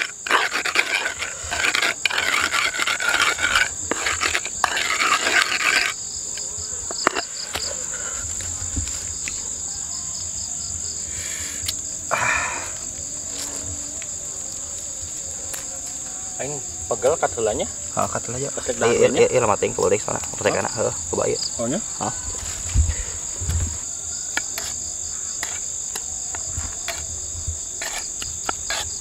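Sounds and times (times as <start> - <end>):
pestle grinding in a mortar: 0.0 - 6.0
insects chirping: 0.0 - 29.0.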